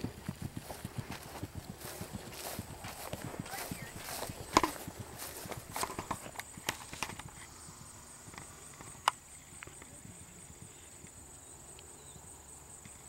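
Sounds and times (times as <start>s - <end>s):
horse hoofbeats on turf: 0.0s - 8.6s.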